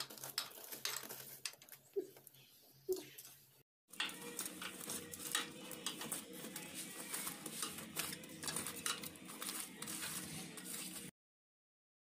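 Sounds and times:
metal rod scraping through embers: 3.9 - 11.1.

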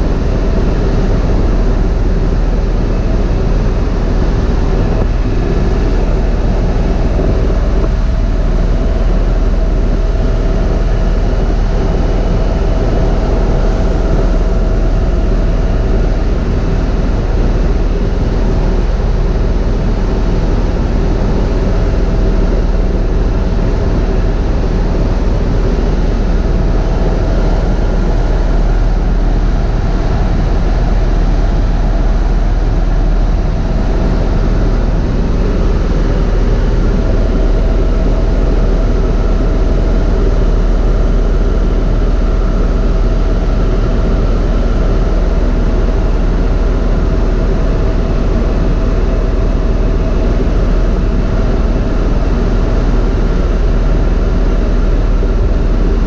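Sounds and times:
helicopter cabin drone: 0.0 - 56.0.

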